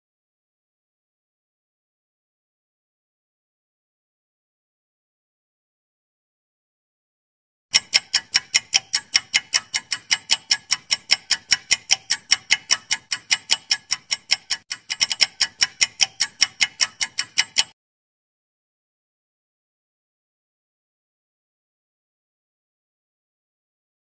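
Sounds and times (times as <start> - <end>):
fast clock ticking: 7.7 - 17.8.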